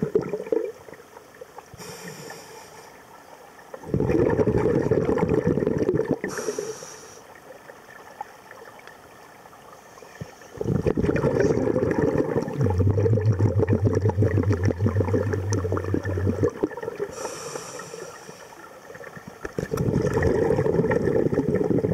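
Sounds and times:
exhaled bubbles rumbling underwater: 0.0s - 1.8s, 3.2s - 6.5s, 10.0s - 21.9s
low steady hum: 0.0s - 21.9s
regulator inhale hiss: 1.7s - 3.0s, 6.3s - 7.3s, 17.1s - 18.7s.

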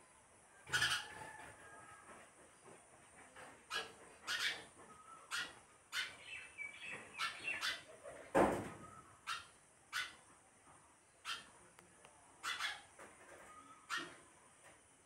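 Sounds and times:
sparrow chirping: 3.7s - 7.9s.

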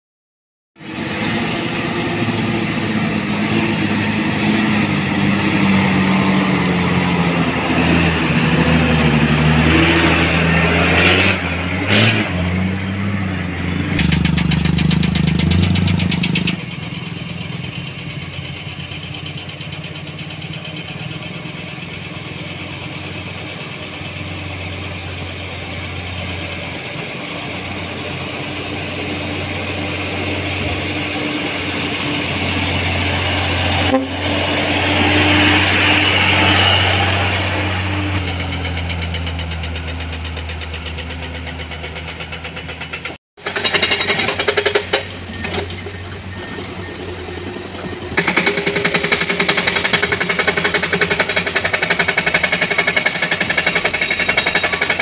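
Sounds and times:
diesel truck approaching: 0.8s - 55.0s
dump truck engine pulling hard: 0.8s - 55.0s.

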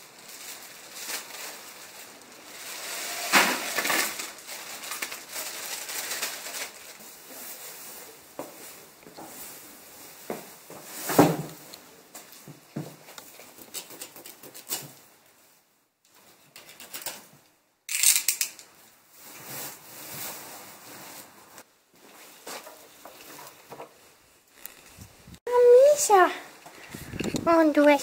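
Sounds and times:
dry hay rustling and crackling: 0.0s - 11.1s.

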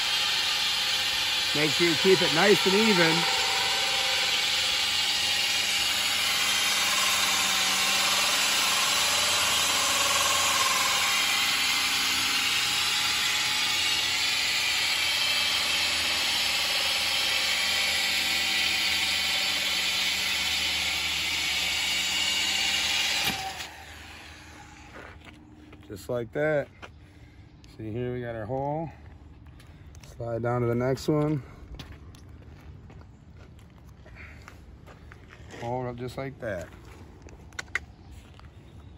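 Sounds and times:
drill hole saw grinding glass: 0.0s - 25.1s.

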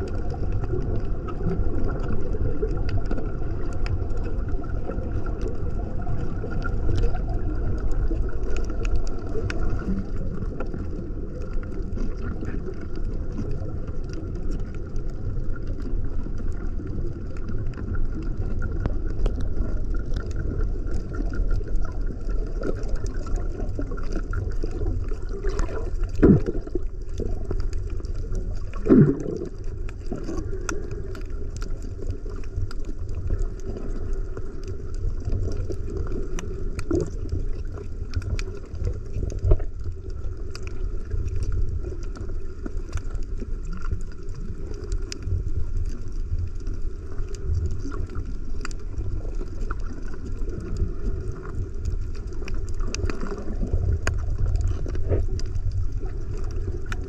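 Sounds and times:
underwater rumble and gurgle: 0.0s - 57.0s
underwater knocks: 25.6s - 26.8s.

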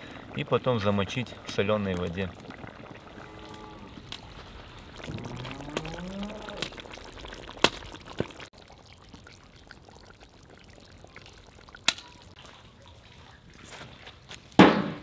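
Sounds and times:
broth bubbling: 0.0s - 14.0s
fire pops: 4.0s - 8.5s.

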